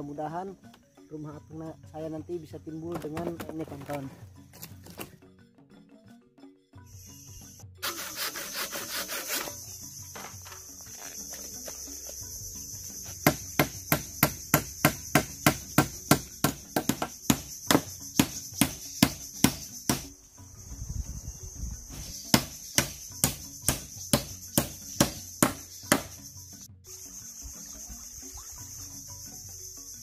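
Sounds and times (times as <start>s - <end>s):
high insect buzz: 6.8s - 30.0s.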